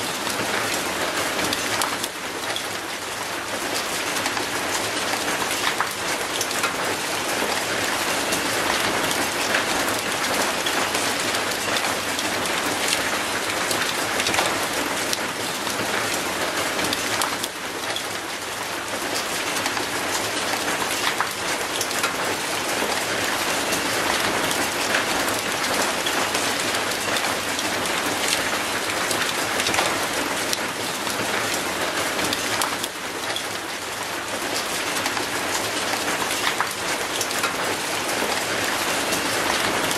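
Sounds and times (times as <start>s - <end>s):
rain on metal and concrete: 0.0s - 39.9s.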